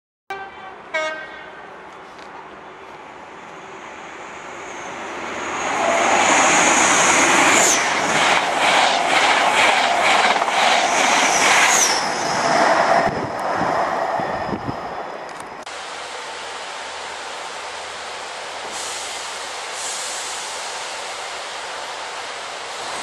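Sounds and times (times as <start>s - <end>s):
train power car whine: 0.3s - 23.0s
train wheels rhythmic clatter: 7.4s - 12.6s.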